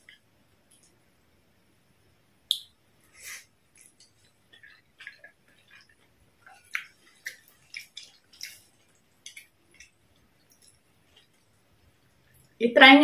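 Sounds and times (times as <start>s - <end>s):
wet chewing: 3.7s - 12.6s.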